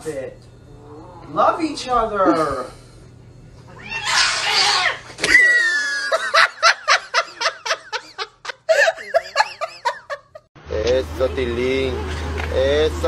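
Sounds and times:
person laughing hard: 0:05.2 - 0:10.5.

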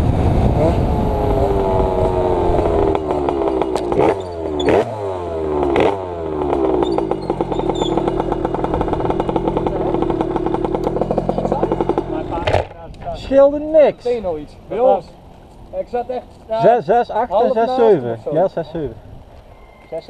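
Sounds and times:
two-stroke scooter engine: 0:00.0 - 0:12.6.

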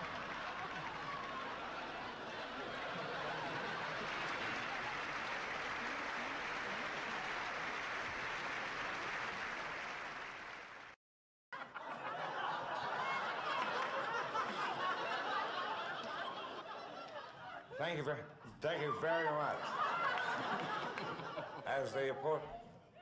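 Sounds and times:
audience laughter: 0:00.0 - 0:07.6, 0:11.6 - 0:18.2, 0:18.8 - 0:22.2
audience applauding: 0:00.0 - 0:11.0, 0:12.7 - 0:16.4, 0:19.7 - 0:21.5.

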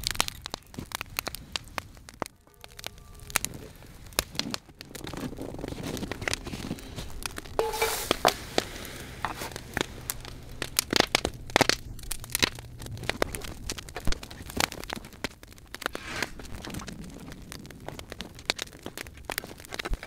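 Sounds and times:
campfire crackling and popping: 0:00.0 - 0:20.0
snow tipped into a pot: 0:07.6 - 0:09.9.

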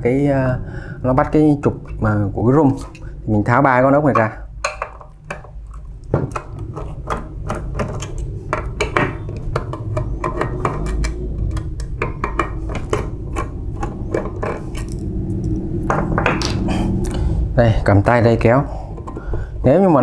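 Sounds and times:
low hum: 0:00.0 - 0:20.0
screwdriver clicking and scraping metal: 0:04.2 - 0:15.6.

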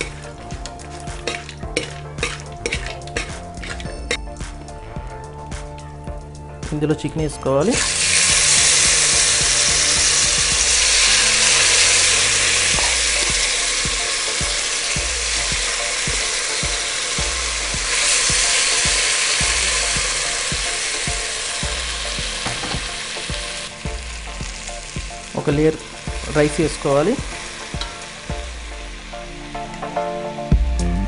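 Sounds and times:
steel spoon scraping a pan: 0:00.0 - 0:04.3
curry sizzling in hot oil: 0:00.0 - 0:04.4, 0:07.7 - 0:30.3.

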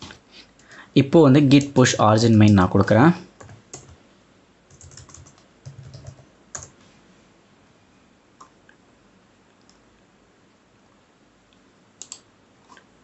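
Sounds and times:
typing on computer keyboard: 0:03.4 - 0:04.0, 0:04.7 - 0:06.8, 0:12.0 - 0:12.2
faint clicks: 0:11.5 - 0:12.9.

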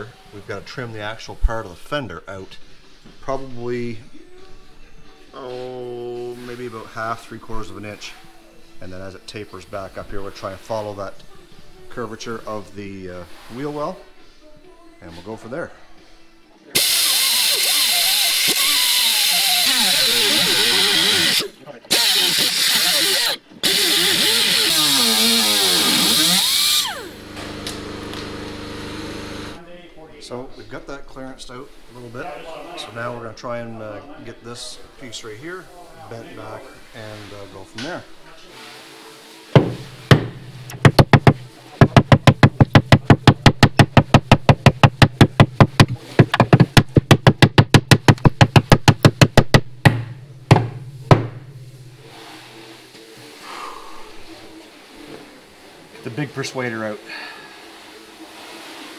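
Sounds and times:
grinder cutting sheet metal: 0:16.8 - 0:29.6
sledgehammer hitting steel: 0:42.3 - 0:52.2.

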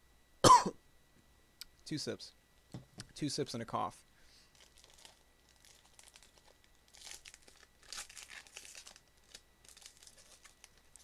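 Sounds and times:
foil pack crinkling: 0:04.5 - 0:11.0.

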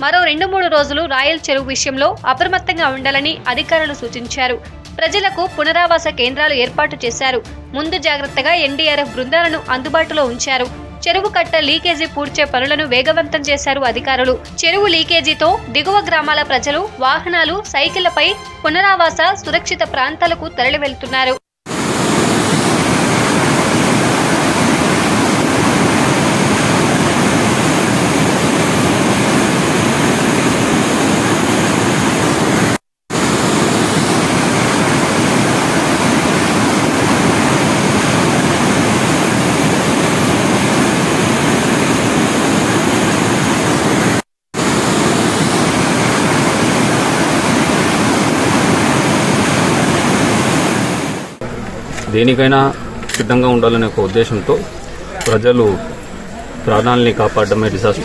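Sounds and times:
water rushing in a torrent: 0:21.7 - 0:51.4.

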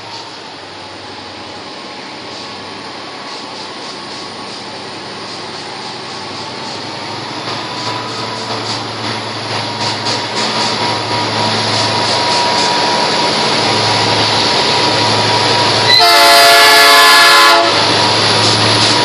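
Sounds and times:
locomotives running: 0:00.0 - 0:19.0
locomotive horn: 0:15.8 - 0:17.9.

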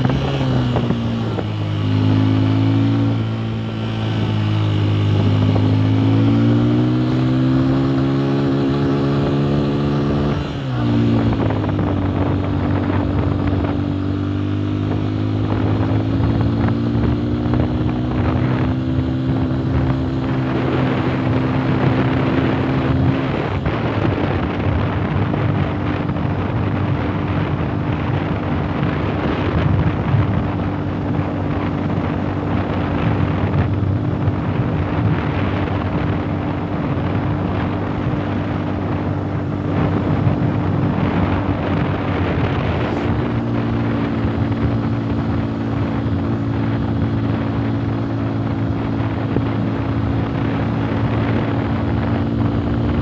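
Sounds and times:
motorcycle engine running: 0:00.0 - 0:53.0
wind rushing over microphone: 0:00.0 - 0:53.0.

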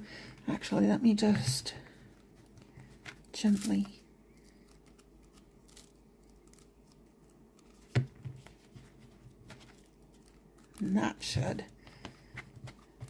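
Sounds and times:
papery card rustles: 0:02.4 - 0:10.9.

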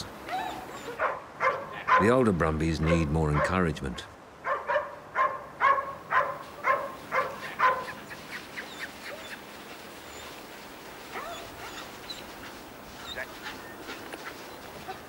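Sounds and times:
dog barking: 0:00.3 - 0:02.1, 0:02.8 - 0:03.6, 0:04.4 - 0:08.0.

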